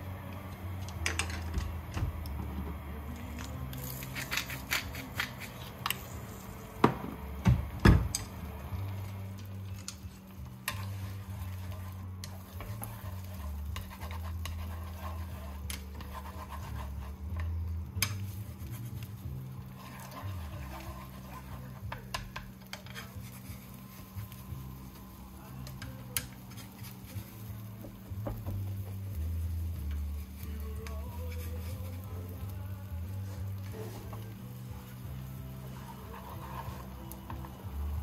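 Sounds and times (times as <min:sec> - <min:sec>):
steady low hum: 0:00.0 - 0:38.0
utensils scraping cookware: 0:03.4 - 0:06.4, 0:09.7 - 0:25.0, 0:25.6 - 0:27.6, 0:33.2 - 0:37.6.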